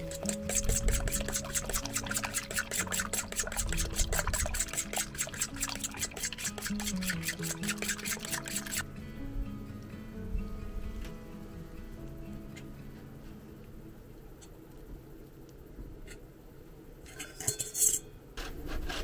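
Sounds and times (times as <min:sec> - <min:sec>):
fork beating eggs in metal bowl: 0:00.0 - 0:08.8
background music: 0:00.0 - 0:14.0.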